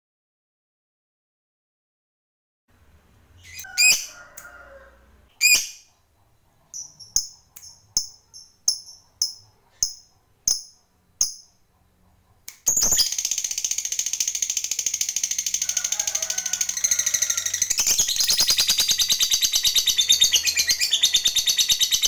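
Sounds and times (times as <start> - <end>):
lovebird high chirps: 3.4 - 4.1, 5.4 - 5.9, 6.7 - 11.6, 12.7 - 15.9, 16.6 - 22.0
lovebird shrill calls: 12.7 - 15.9, 16.6 - 22.0.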